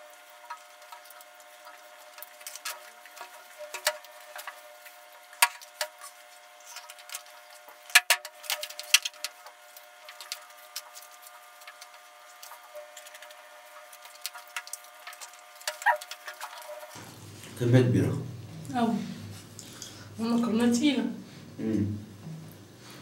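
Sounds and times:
faint steady hum: 0:00.0 - 0:23.0
chewing: 0:08.5 - 0:17.5.

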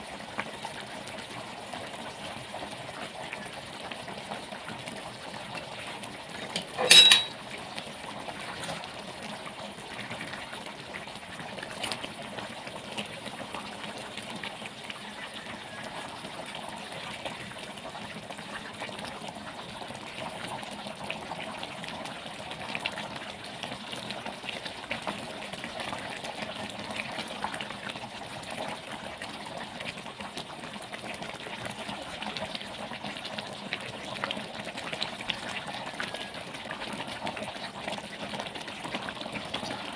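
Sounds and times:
curry bubbling in a pan: 0:00.0 - 0:39.9
ladle stirring: 0:06.4 - 0:07.4.

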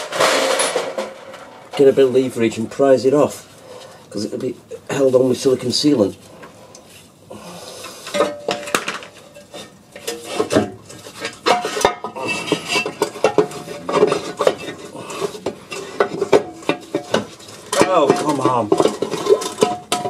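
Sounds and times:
metallic knocks scrapes and clanks: 0:07.8 - 0:20.0.

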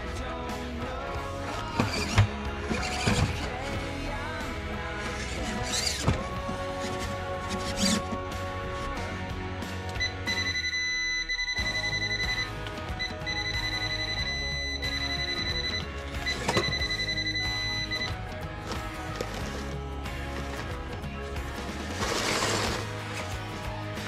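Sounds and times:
background music: 0:00.0 - 0:24.0
high steady electronic tone: 0:10.0 - 0:18.2.

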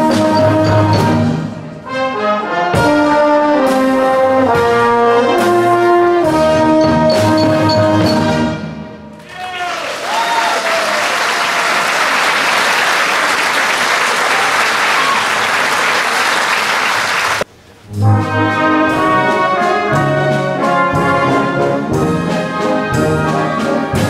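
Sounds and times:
orchestra playing with brass: 0:00.0 - 0:09.0, 0:16.7 - 0:24.0
audience applauding: 0:09.2 - 0:17.4.

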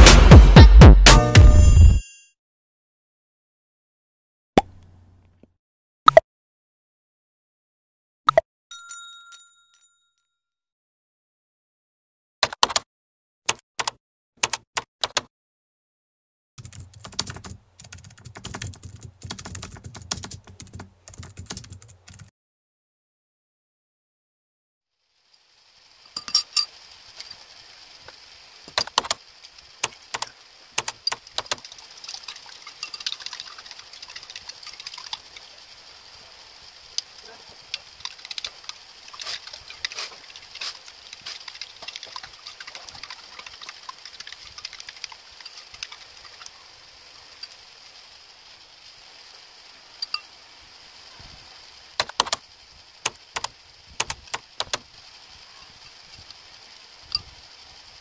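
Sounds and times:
spoon clinking against ceramic bowl: 0:26.2 - 0:26.7.

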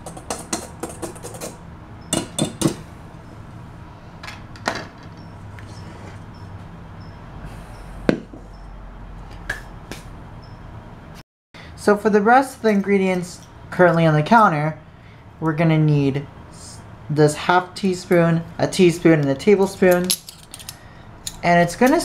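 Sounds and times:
sharp knocks: 0:08.1 - 0:08.5.

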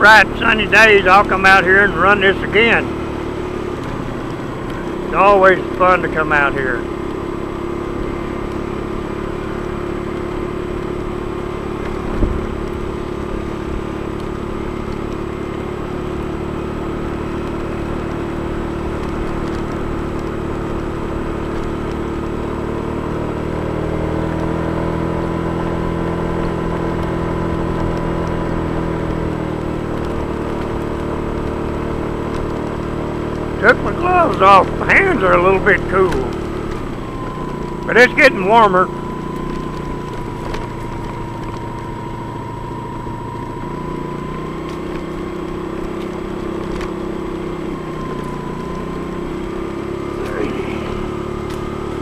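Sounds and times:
scooter motor humming: 0:00.0 - 0:52.0.

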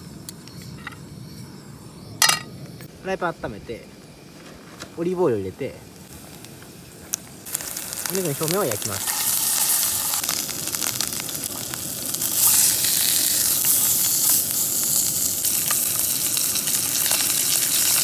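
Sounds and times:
meat sizzling in a frying pan: 0:06.0 - 0:18.0.

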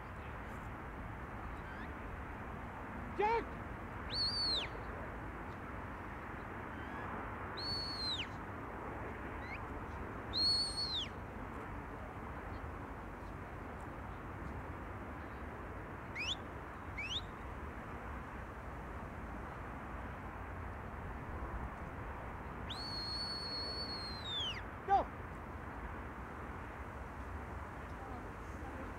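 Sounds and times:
outdoor background hiss: 0:00.0 - 0:28.9
handler's whistle commands: 0:04.1 - 0:04.7, 0:07.6 - 0:08.3, 0:10.4 - 0:11.1, 0:22.7 - 0:25.0.

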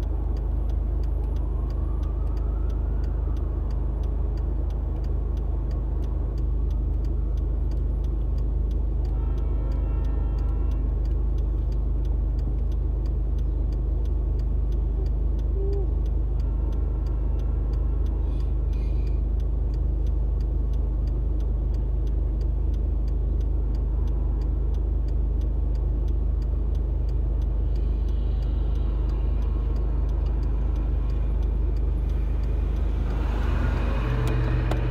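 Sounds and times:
faint even ticking: 0:00.0 - 0:34.9
car engine idling: 0:11.0 - 0:34.9
car driving past: 0:28.5 - 0:34.9.

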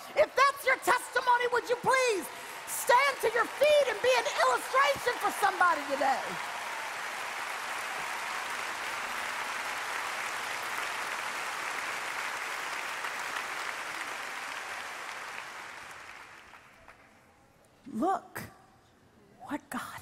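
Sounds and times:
audience applauding: 0:00.0 - 0:17.2.

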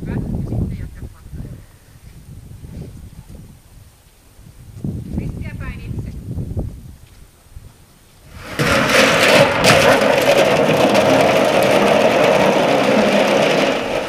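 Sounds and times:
metal drum clattering down ramp: 0:08.3 - 0:14.0.

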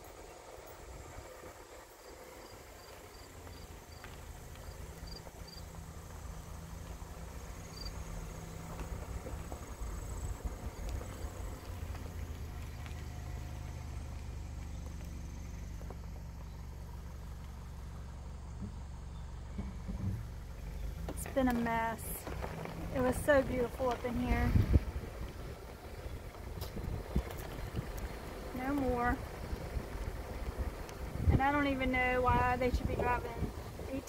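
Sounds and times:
insects chirping: 0:00.0 - 0:12.4, 0:13.0 - 0:23.4
car engine and tyres rumbling: 0:00.0 - 0:34.0.

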